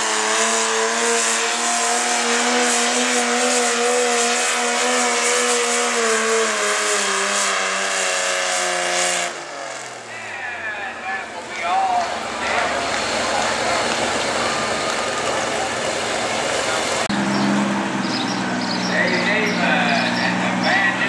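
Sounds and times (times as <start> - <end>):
tractor engine running flat out: 10.0 - 21.0.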